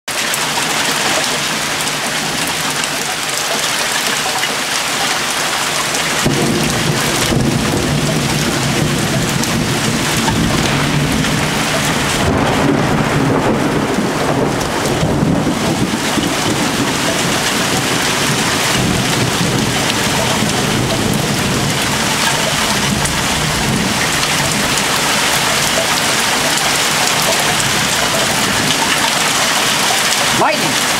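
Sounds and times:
heavy rain falling: 0.1s - 30.9s
low rumble of thunder: 6.1s - 30.2s.

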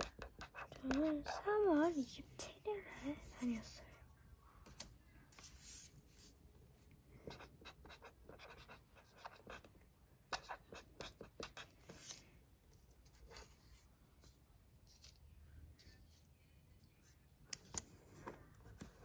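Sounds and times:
marker pen strokes on paper: 5.3s - 6.4s.

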